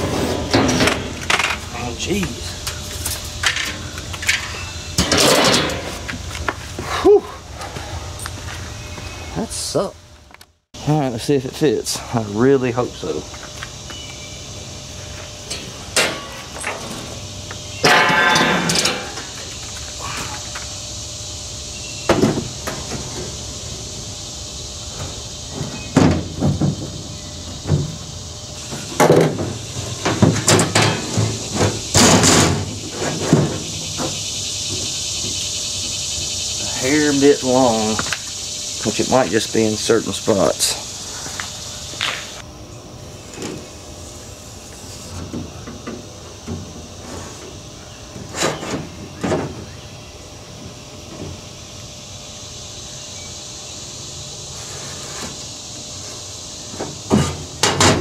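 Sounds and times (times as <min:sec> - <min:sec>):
aluminum sheet knocking and clanking: 0:29.0 - 0:34.2.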